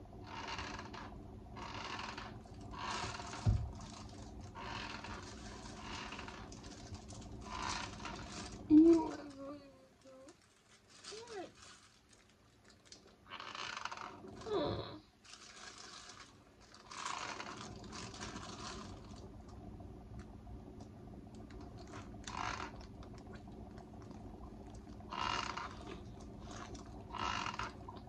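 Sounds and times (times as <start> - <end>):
low steady hum: 0.0 - 28.0
fabric rustling and scrunching: 2.8 - 14.6, 15.2 - 19.2.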